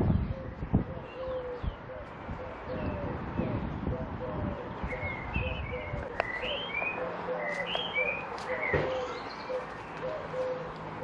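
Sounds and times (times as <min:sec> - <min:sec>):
bird chirping: 0:04.6 - 0:10.8.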